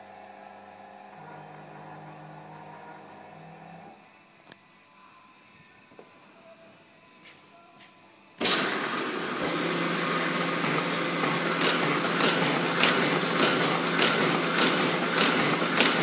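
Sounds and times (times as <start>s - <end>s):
steady machine hum: 0.0s - 16.0s
folding machine clatter: 8.4s - 16.0s
regular clicks of sheets feeding: 8.4s - 16.0s.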